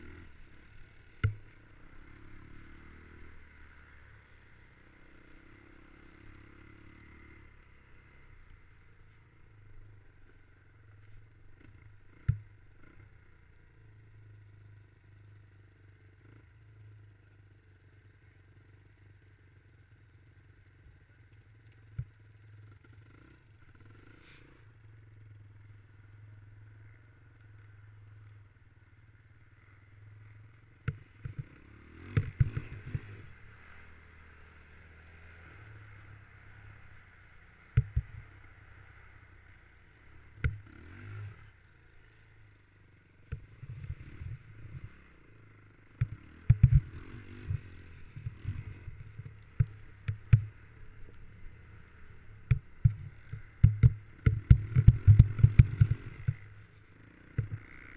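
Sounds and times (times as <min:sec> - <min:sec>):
dirt bike engine running: 0:00.0 - 0:57.9
bike knocking and clattering: 0:52.4 - 0:56.5.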